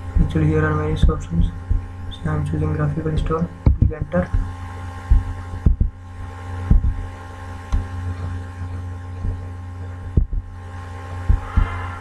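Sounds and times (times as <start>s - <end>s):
dull low thumps: 0.0s - 12.0s
electrical hum: 0.0s - 12.0s.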